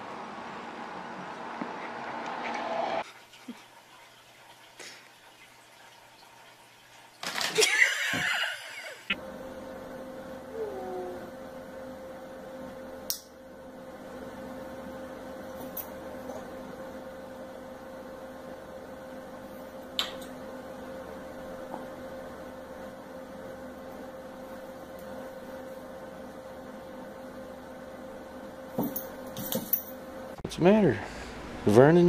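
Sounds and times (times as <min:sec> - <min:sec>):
steady electrical hum: 0:06.6 - 0:32.0.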